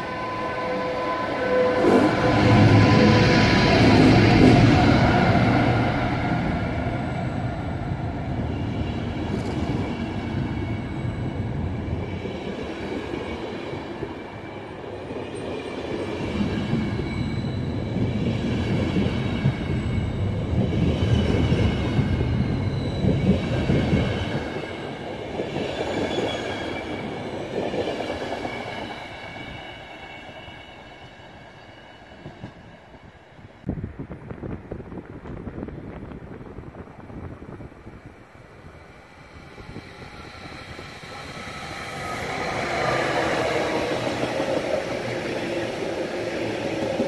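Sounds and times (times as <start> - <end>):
train wheels rumbling: 0.0 - 14.4, 33.8 - 47.0
high wheel squeal: 16.9 - 18.0.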